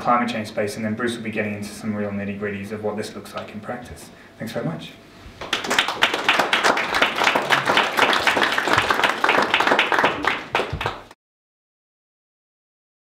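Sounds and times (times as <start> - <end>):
audience applauding: 5.4 - 11.2.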